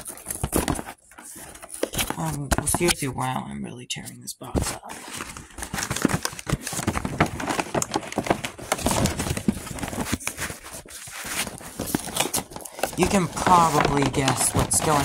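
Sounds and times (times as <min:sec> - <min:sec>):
cardboard box being torn: 0:00.0 - 0:02.7, 0:05.0 - 0:15.0.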